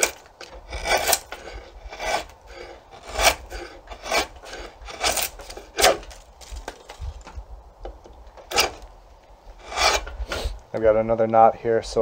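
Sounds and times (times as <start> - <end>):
drawknife shaving wood: 0.0 - 7.4, 8.4 - 8.9, 9.6 - 10.6.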